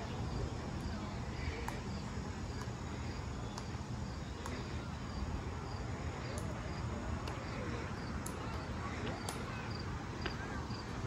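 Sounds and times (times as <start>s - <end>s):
faint distant voices: 0.0s - 11.0s
steady hiss with low rumble: 0.0s - 11.0s
faint sharp clicks: 3.5s - 3.8s, 8.2s - 8.6s, 9.2s - 9.5s.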